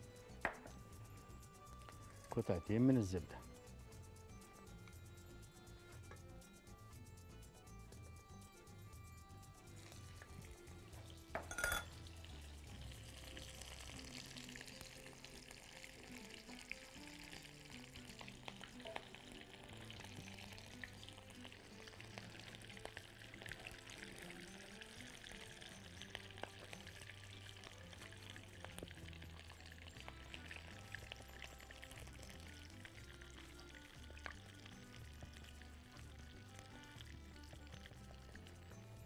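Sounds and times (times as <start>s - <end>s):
background music: 0.0s - 39.0s
sizzling in frying pan: 0.0s - 39.0s
butter spattering in hot oil: 11.1s - 37.2s.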